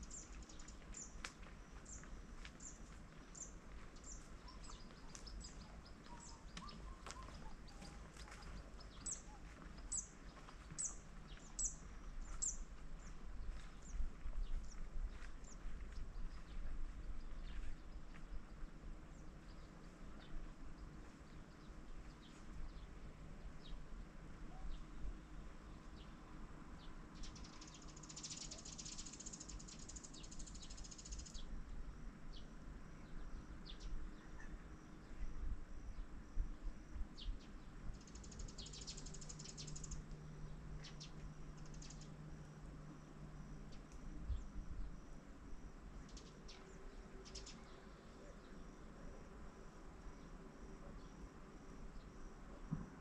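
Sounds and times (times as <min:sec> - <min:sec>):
faint low rumble: 0:00.0 - 0:53.0
insects chirring: 0:34.6 - 0:53.0.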